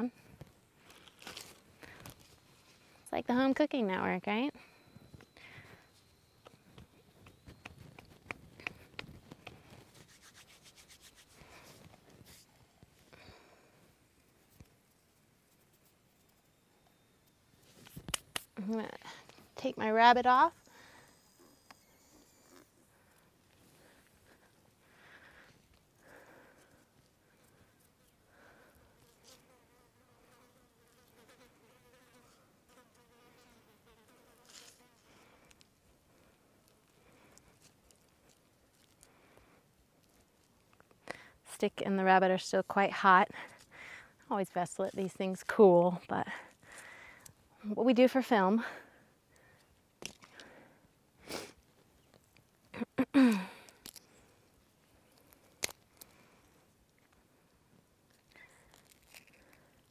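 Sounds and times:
fly buzzing: 29.1s - 35.4s.

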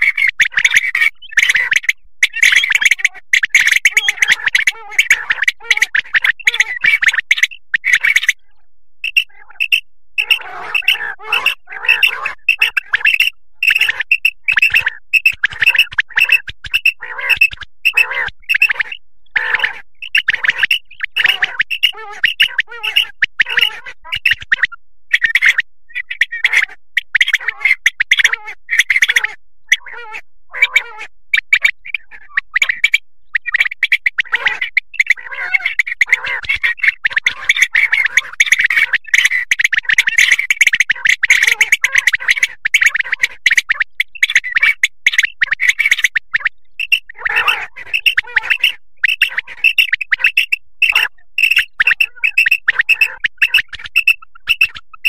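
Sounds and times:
quail calling: 0.0s - 55.0s.

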